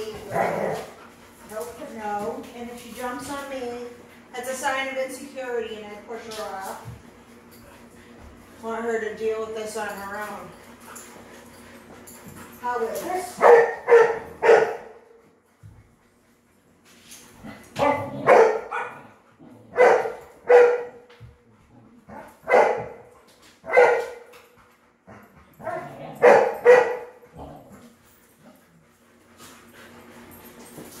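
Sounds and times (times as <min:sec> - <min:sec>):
dog barking: 0:13.4 - 0:15.0, 0:17.8 - 0:19.0, 0:19.7 - 0:21.0, 0:22.1 - 0:23.0, 0:23.6 - 0:24.2, 0:25.6 - 0:27.1.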